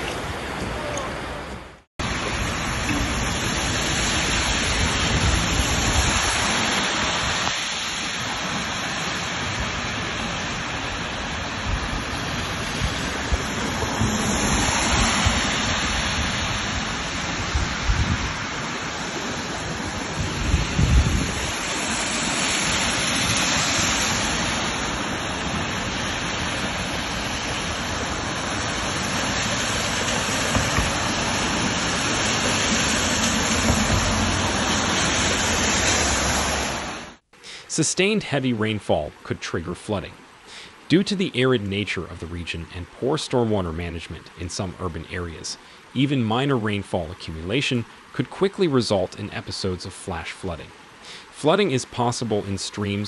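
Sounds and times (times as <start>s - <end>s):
floodwater rushing: 0.0s - 53.0s
rain: 0.0s - 53.0s
wind buffeting microphone: 1.4s - 7.6s, 9.5s - 18.6s, 19.6s - 21.7s.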